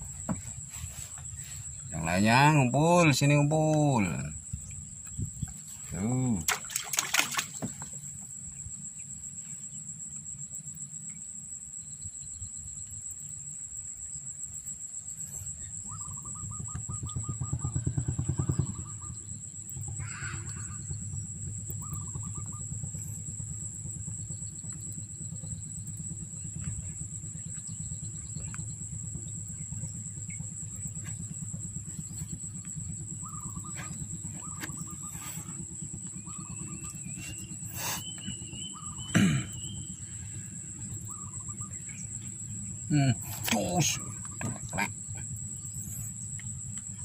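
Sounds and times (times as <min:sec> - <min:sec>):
low pulsing rumble: 0:00.0 - 0:06.5, 0:07.4 - 0:47.0
insects trilling: 0:00.0 - 0:47.0
short chirping calls: 0:21.8 - 0:22.6, 0:33.2 - 0:45.2.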